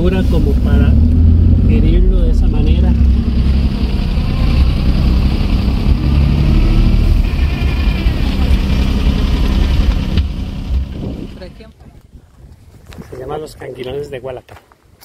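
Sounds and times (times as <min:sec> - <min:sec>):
car engine low rumble: 0:00.0 - 0:11.8.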